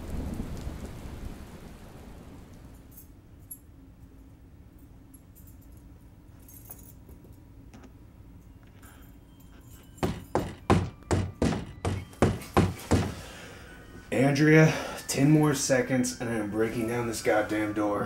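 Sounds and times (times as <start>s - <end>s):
fist pounding on door: 10.0s - 13.2s.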